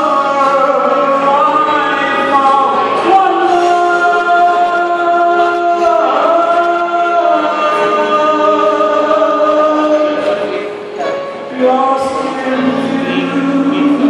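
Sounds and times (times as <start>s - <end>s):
man singing a slow ballad: 0.0s - 14.0s
musical accompaniment: 0.0s - 14.0s.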